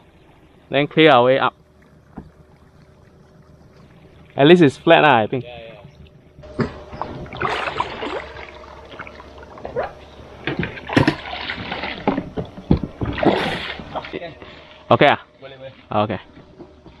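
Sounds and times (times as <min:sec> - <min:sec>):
oars splashing: 0:00.0 - 0:17.0
boat hull scraping and knocking: 0:05.7 - 0:14.2
sharp bumps: 0:05.8 - 0:14.0.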